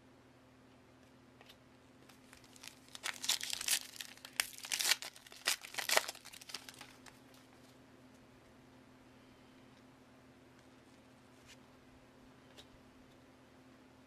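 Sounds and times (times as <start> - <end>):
foil wrapper crackling: 2.2 - 7.2.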